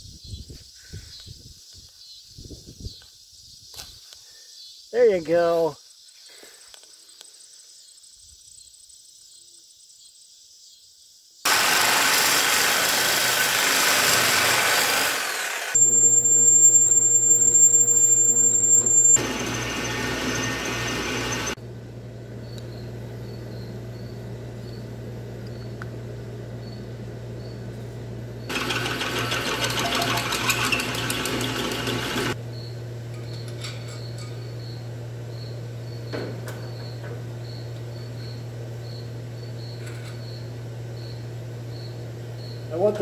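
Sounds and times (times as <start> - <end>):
electric drill running: 11.5 - 21.6, 28.5 - 32.4.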